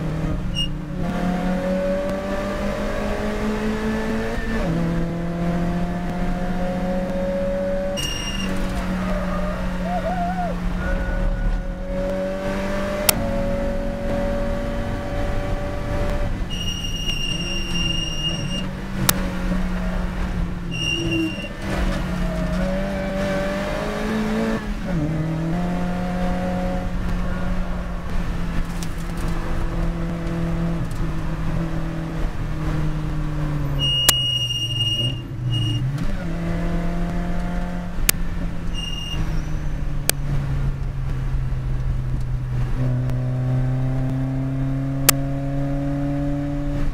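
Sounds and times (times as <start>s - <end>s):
race car engine revving: 0.0s - 46.9s
short high electronic beeps: 8.0s - 8.6s, 16.5s - 18.7s, 20.7s - 21.6s, 33.8s - 35.8s, 38.7s - 39.7s.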